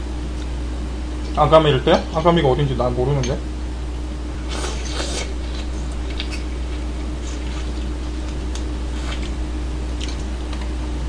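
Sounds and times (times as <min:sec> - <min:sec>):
steady low hum: 0:00.0 - 0:11.0
wet slurping and sucking: 0:04.4 - 0:09.4.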